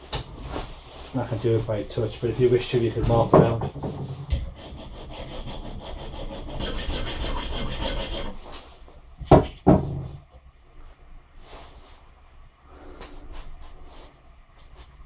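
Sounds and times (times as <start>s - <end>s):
file scraping on metal rod: 4.5s - 8.6s
sharp knocks: 9.3s - 10.2s.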